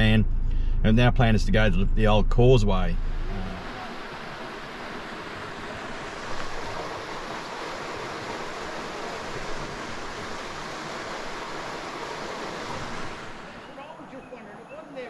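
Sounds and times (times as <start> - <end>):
creek water flowing: 2.9 - 15.0.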